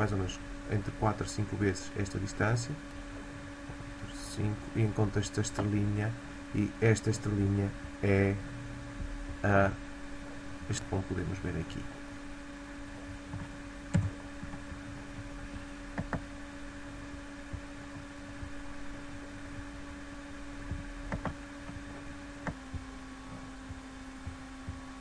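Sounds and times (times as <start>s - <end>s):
electrical hum: 0.0s - 25.0s
computer mouse clicks: 21.1s - 21.8s.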